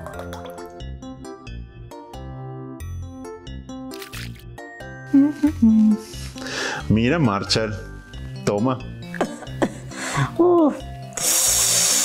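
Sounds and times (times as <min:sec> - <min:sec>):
background music melody: 0:00.0 - 0:11.3
brief hiss: 0:11.2 - 0:12.0.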